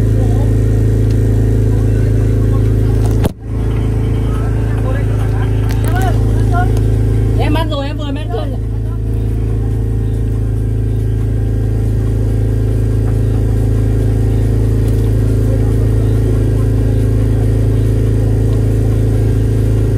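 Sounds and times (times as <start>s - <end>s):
boat engine droning: 0.0s - 19.9s.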